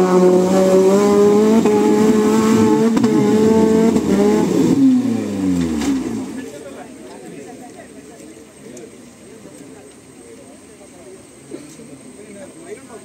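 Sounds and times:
engine revving under load: 0.0s - 6.6s.

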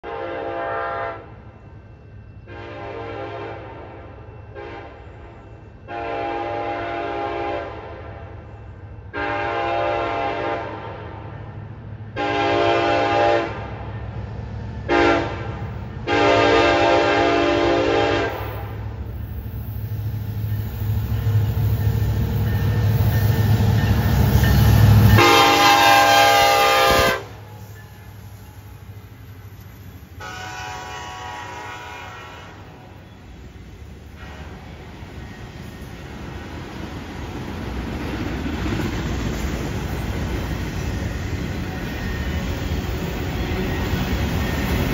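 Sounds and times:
train horn: 0.0s - 1.4s, 2.4s - 11.4s, 12.1s - 13.8s, 14.9s - 18.8s, 24.9s - 27.6s, 30.2s - 33.2s
locomotive engines rumbling: 0.1s - 44.9s.

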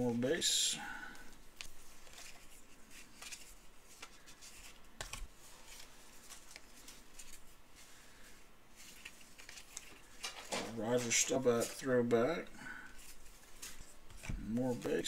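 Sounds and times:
cards being flipped through: 1.6s - 7.5s, 8.8s - 11.8s, 13.0s - 15.0s.

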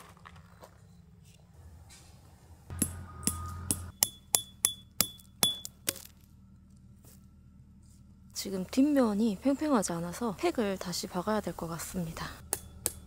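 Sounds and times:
ringing metal strikes: 2.7s - 5.8s.

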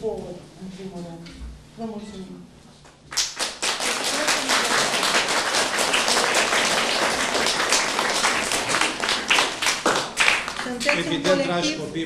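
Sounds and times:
children applauding: 3.1s - 11.1s.

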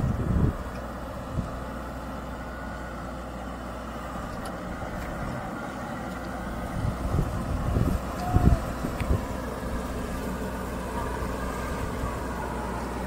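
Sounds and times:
diesel tractor engines running: 0.0s - 13.0s.

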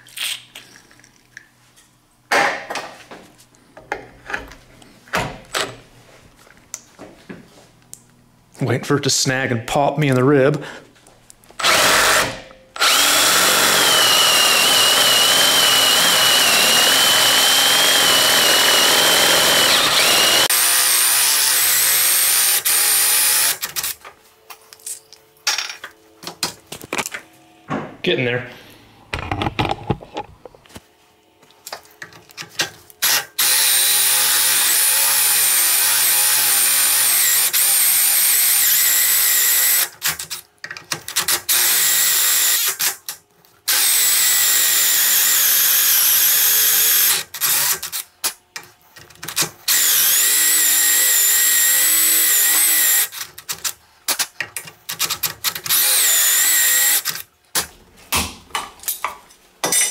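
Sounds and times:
power drill boring into wood: 11.6s - 24.0s, 33.0s - 39.9s, 41.5s - 42.9s, 43.7s - 48.0s, 49.7s - 53.2s, 55.5s - 57.2s.

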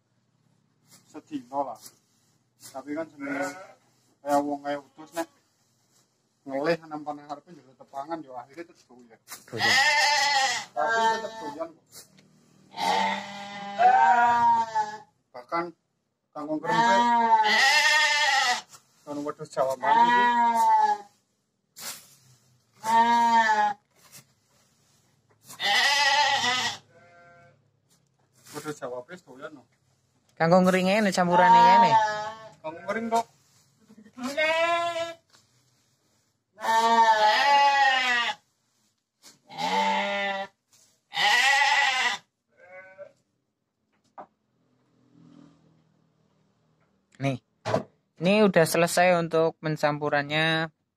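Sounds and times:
sheep bleating: 3.2s - 3.8s, 9.6s - 11.7s, 12.7s - 15.1s, 16.6s - 18.7s, 19.8s - 21.1s, 22.8s - 23.8s, 25.6s - 27.6s, 31.2s - 33.2s, 34.2s - 35.2s, 36.6s - 38.4s, 39.5s - 43.2s
faint short rustle: 21.8s - 22.9s, 23.9s - 25.7s.

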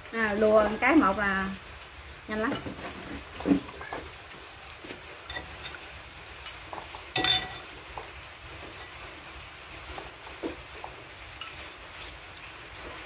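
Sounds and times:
chopsticks clinking on bowls: 6.4s - 7.7s.

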